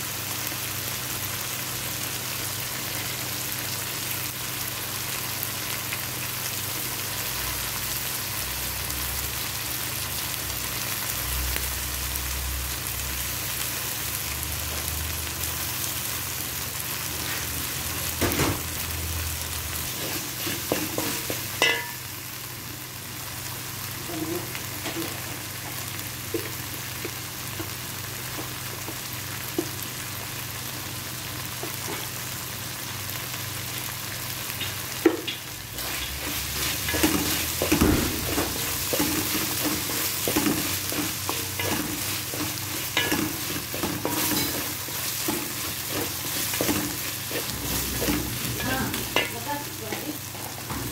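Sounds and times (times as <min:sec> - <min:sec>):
food sizzling in oil: 0:00.0 - 0:50.9
spatula scraping metal pan: 0:35.8 - 0:49.4.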